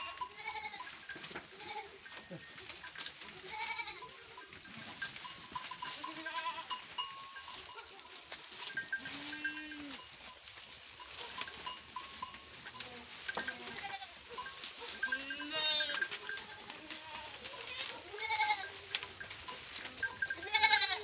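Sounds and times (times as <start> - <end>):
goats bleating: 0.0 - 0.9, 1.5 - 4.5, 5.8 - 6.8, 8.8 - 10.0, 12.8 - 14.2, 14.9 - 21.0
goats chewing: 0.0 - 21.0
leafy fodder rustling and snapping: 7.2 - 21.0.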